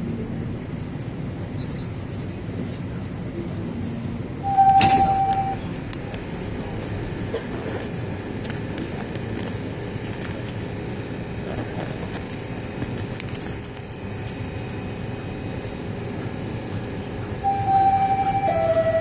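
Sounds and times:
subway car rumble and hum: 0.0 - 19.0.

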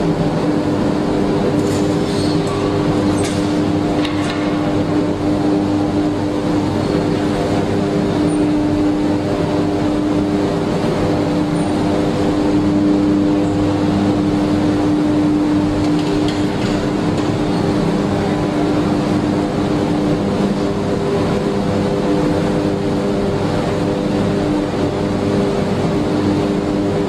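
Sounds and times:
heavy machinery engine drone: 0.0 - 27.0.

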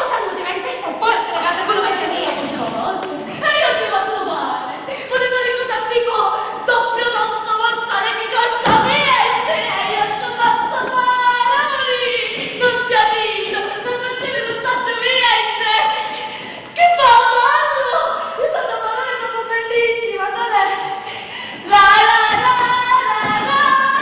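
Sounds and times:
woman singing unaccompanied: 21.6 - 24.0.

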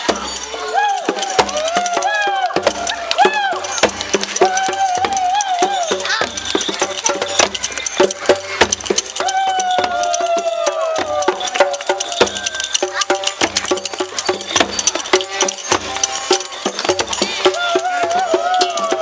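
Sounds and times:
hand rattles and shakers: 0.0 - 19.0
voices calling out: 0.0 - 19.0.

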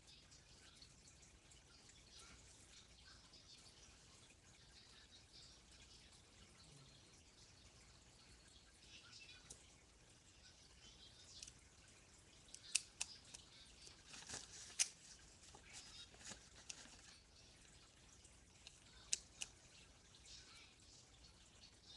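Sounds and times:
faint paper rustling: 12.6 - 17.9.

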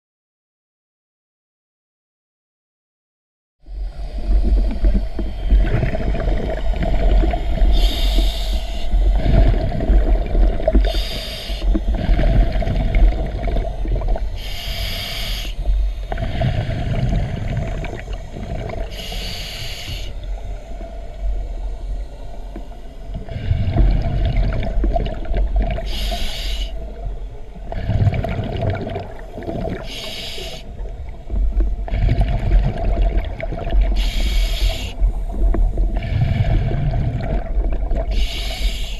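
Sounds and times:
steady low hum: 3.6 - 38.9
exhaled bubbles rushing: 3.9 - 8.1, 9.0 - 11.0, 11.6 - 14.4, 16.1 - 19.0, 23.1 - 26.2, 27.6 - 38.4.

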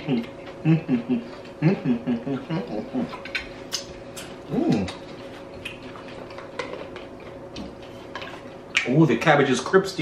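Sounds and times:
chewing clicks and mouth sounds: 0.0 - 0.6, 2.2 - 9.0
man humming and murmuring: 0.0 - 3.2, 4.4 - 5.0
faint steady hum: 0.0 - 10.0.

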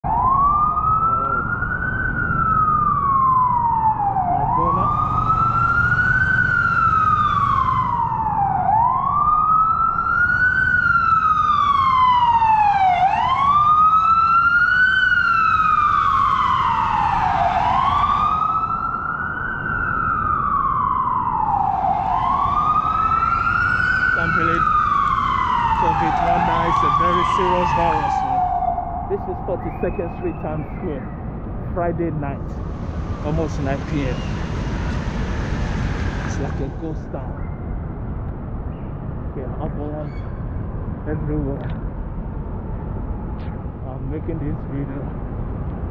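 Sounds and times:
siren wailing: 0.0 - 38.3
steady low rush: 20.2 - 45.9.

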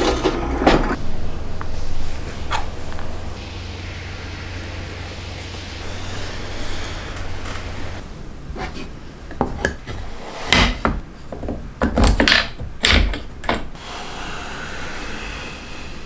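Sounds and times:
quiet rubbing: 1.0 - 9.0
wooden pieces clicking and knocking: 11.3 - 13.8.

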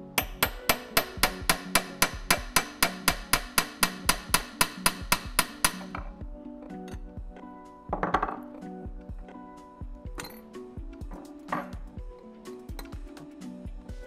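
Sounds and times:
hammer tapping metal tool: 0.2 - 6.1.

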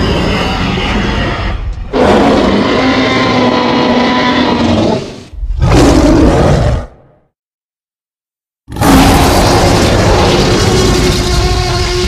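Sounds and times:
monster roars: 8.7 - 12.0.

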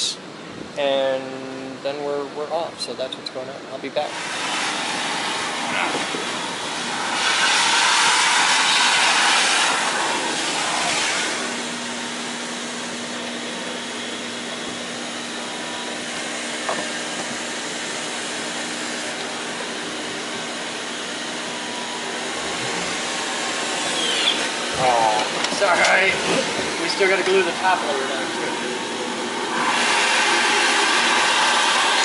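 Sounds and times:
shop vacuum sucking debris: 4.1 - 12.0, 21.7 - 28.0, 29.5 - 32.0.

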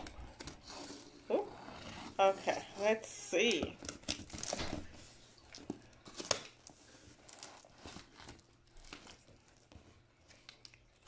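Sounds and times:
tape tearing: 3.5 - 5.0, 5.6 - 9.5
cardboard scraping and rustling: 3.8 - 9.7.

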